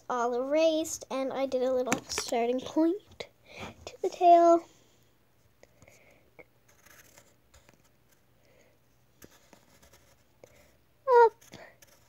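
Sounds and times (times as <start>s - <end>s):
pencil scratching on paper: 6.7s - 8.2s, 9.2s - 10.7s, 11.3s - 12.0s.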